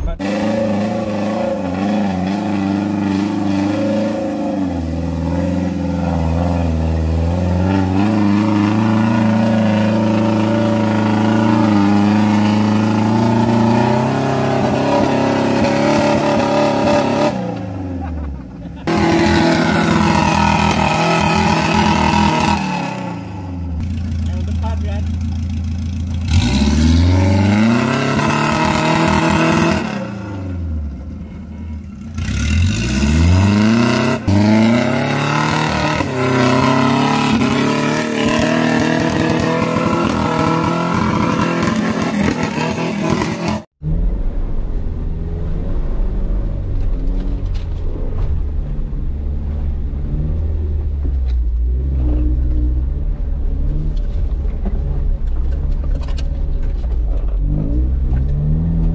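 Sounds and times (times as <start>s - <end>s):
engine running at low revs: 0.0s - 58.9s
engine revving hard: 0.1s - 17.9s, 18.8s - 23.4s, 26.2s - 30.6s, 32.2s - 43.8s.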